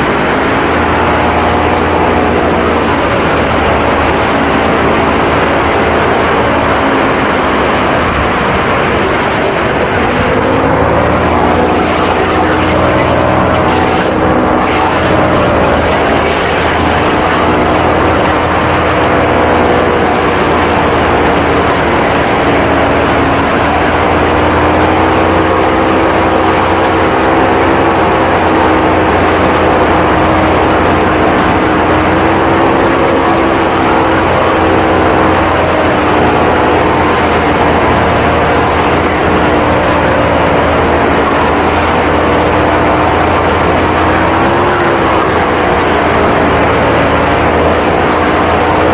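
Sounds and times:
paramotor engine and propeller: 0.0s - 48.9s.

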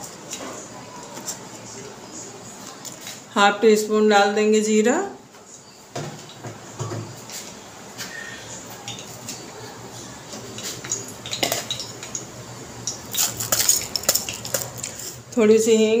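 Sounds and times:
seeds sizzling in hot oil: 12.8s - 15.3s.

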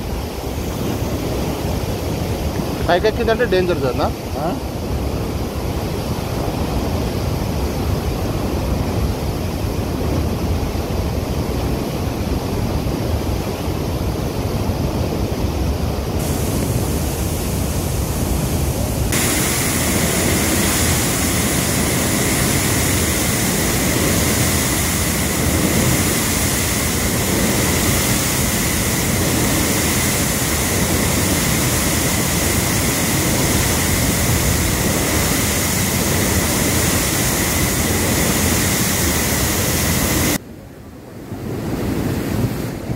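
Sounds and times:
water rushing through sluice gate: 16.0s - 40.4s.

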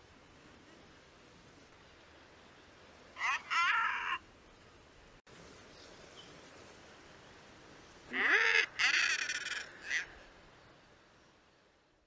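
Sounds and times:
faint background hiss: 0.0s - 12.0s
seabird croaking calls: 3.2s - 4.2s, 8.1s - 10.2s.

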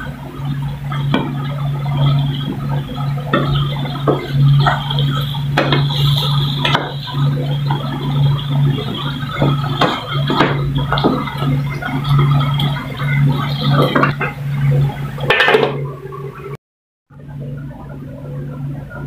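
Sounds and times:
steady low hum: 0.0s - 19.0s
wooden spatula scraping a pan: 0.9s - 14.4s.

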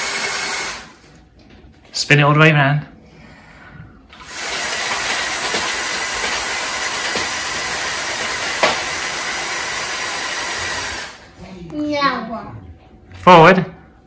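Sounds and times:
toy motors and tracks whirring: 0.0s - 1.0s, 4.1s - 11.2s.

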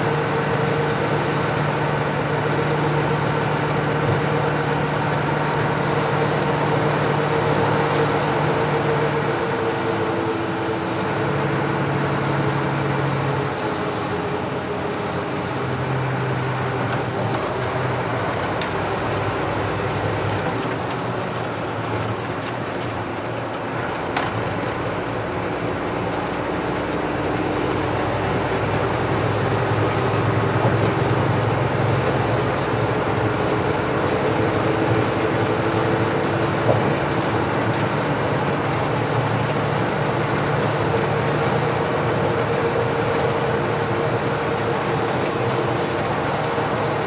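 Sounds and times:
truck diesel engine drone: 0.0s - 47.0s.

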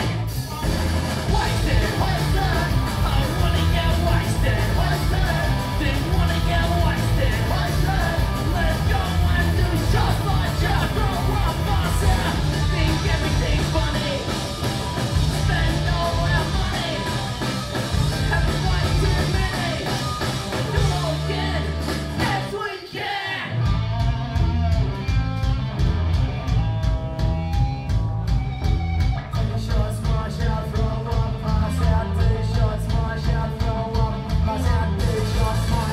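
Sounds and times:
punk rock band playing live: 0.0s - 35.9s
person singing: 1.3s - 14.3s, 20.7s - 23.6s.

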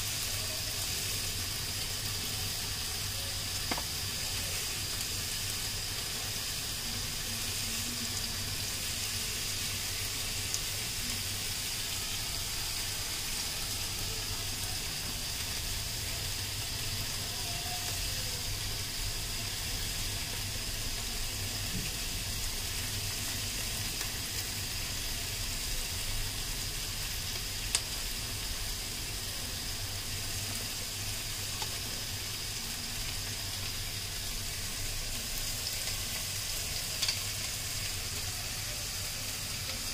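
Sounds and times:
water boiling and bubbling: 0.0s - 39.9s
metal tongs clicking on pan: 36.9s - 37.3s.

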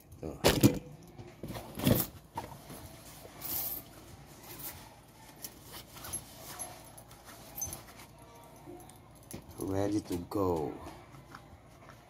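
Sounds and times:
backpack rustling: 1.4s - 3.8s, 4.4s - 8.4s.

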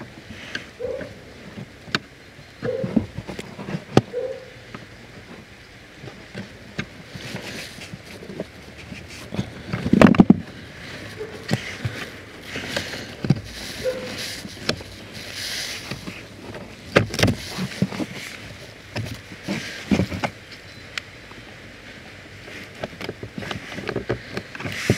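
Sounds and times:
filter rustling: 2.6s - 20.7s, 21.7s - 24.9s
plastic clicks and knocks: 9.4s - 10.5s.

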